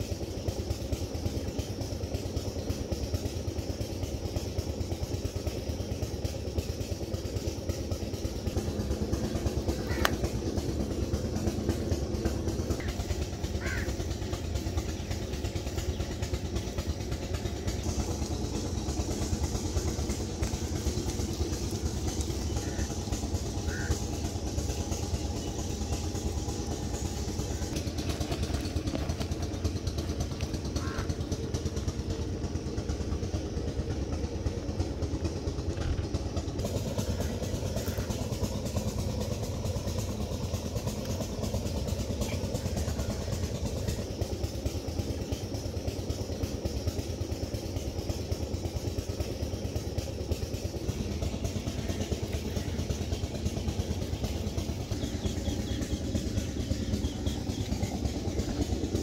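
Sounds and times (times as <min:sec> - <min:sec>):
low mechanical drone: 0:00.0 - 0:59.0.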